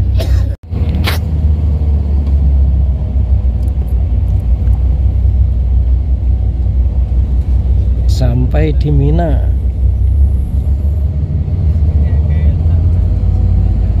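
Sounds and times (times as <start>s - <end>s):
low rumble of street noise: 0.0s - 14.0s.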